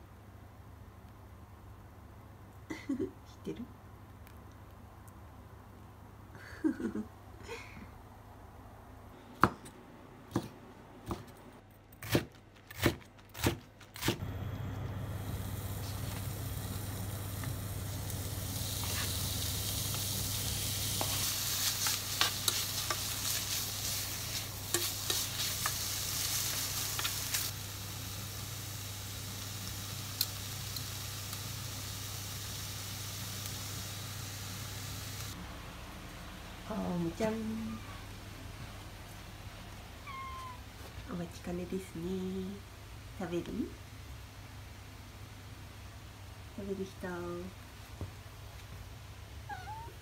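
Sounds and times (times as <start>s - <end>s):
meat sizzling in a pan: 15.0s - 35.4s.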